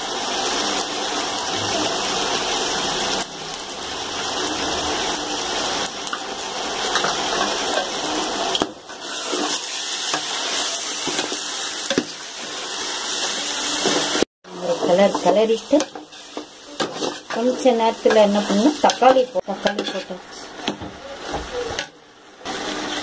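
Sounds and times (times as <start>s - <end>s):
food sizzling in a pot: 0.0s - 23.0s
spatula scraping a pot: 8.9s - 11.4s, 14.8s - 20.2s.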